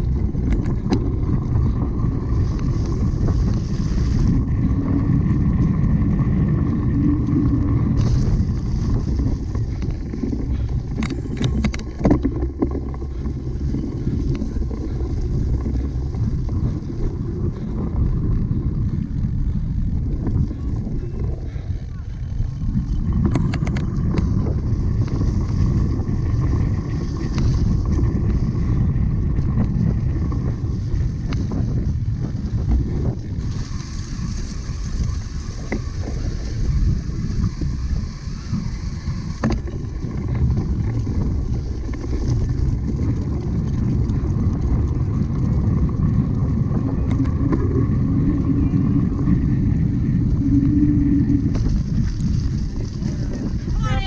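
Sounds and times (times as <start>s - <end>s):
sharp clicks from bike: 0.0s - 4.4s, 7.1s - 17.7s, 21.5s - 28.5s
wind rumbling over microphone: 0.0s - 54.0s.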